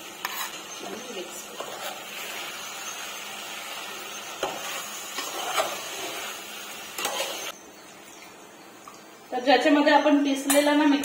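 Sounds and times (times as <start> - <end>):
chicken sizzling in a pot: 0.0 - 7.6
metal spoon scraping a pot: 0.2 - 2.4, 4.3 - 7.5.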